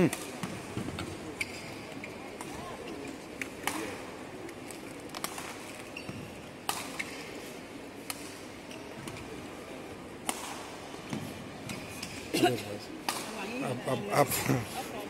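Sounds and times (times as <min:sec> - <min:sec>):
rackets striking shuttlecock: 0:06.6 - 0:07.2, 0:10.2 - 0:12.2, 0:13.0 - 0:13.4.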